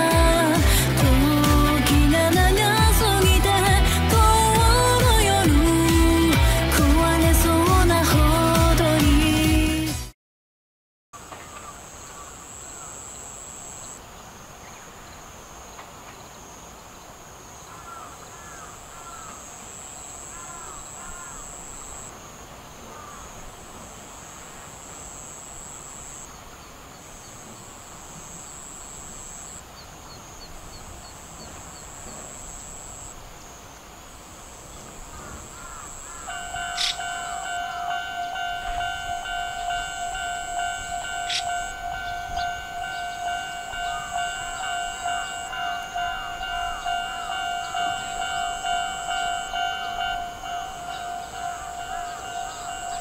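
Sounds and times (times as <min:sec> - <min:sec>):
steady high-pitched whine: 0:31.7 - 0:53.0.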